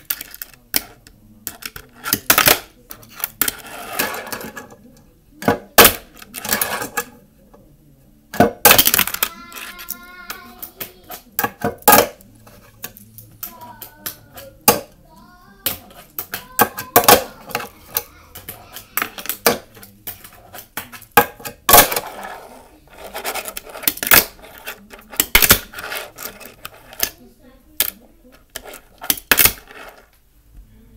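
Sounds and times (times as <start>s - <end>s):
fingerboard wheels rolling: 3.2s - 4.7s.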